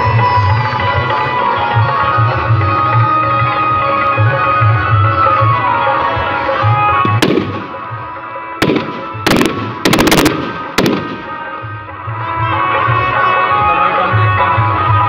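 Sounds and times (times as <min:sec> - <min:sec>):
festival music: 0:00.0 - 0:15.0
fireworks banging: 0:07.0 - 0:08.0, 0:08.6 - 0:11.7.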